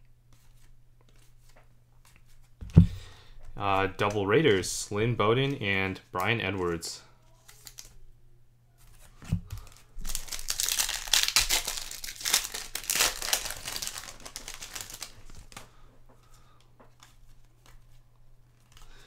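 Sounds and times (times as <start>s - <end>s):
wrapper crackling and tearing: 7.3s - 7.9s, 9.5s - 15.7s.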